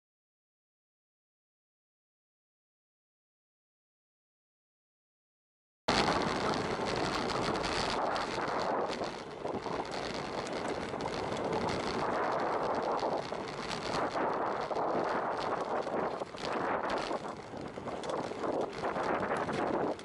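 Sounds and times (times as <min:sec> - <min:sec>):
bike knocks and rattles: 0:05.9 - 0:20.0
tyre and road noise: 0:05.9 - 0:20.0
wind buffeting microphone: 0:05.9 - 0:20.0.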